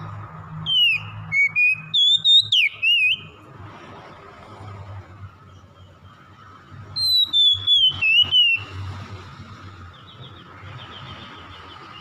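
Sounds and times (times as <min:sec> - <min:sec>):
bird whistling: 0:00.6 - 0:03.3, 0:07.0 - 0:08.7.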